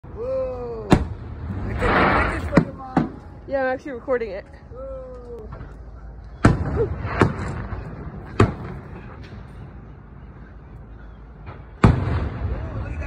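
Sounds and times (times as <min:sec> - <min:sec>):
firework shells booming: 0:00.9 - 0:03.3, 0:06.4 - 0:09.8, 0:11.4 - 0:13.0.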